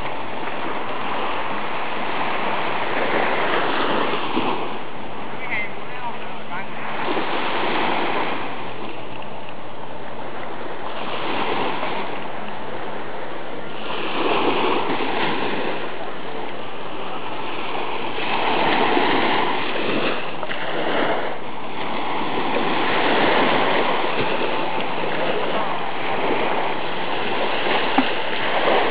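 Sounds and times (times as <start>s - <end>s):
surf washing onto beach: 0.0s - 28.9s.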